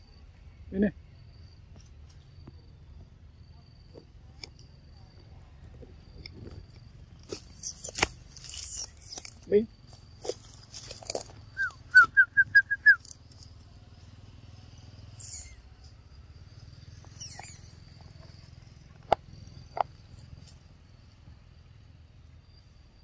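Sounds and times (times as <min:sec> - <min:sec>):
animal high-pitched calls: 0:15.2 - 0:15.7, 0:17.1 - 0:18.0.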